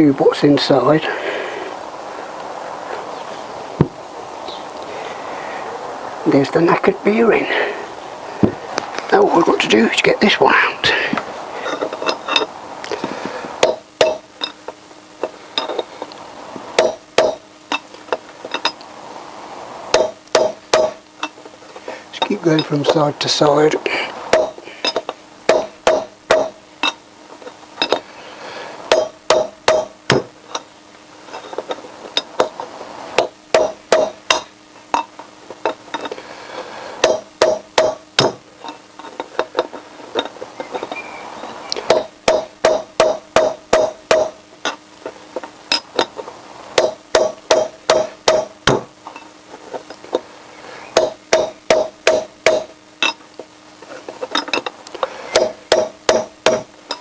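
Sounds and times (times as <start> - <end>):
hammer striking steel drift: 13.6 - 14.6, 16.8 - 17.8, 19.9 - 21.4, 24.3 - 27.0, 28.9 - 30.7, 33.2 - 35.1, 37.0 - 38.4, 41.9 - 44.4, 46.8 - 48.9, 51.0 - 53.2, 55.3 - 57.0.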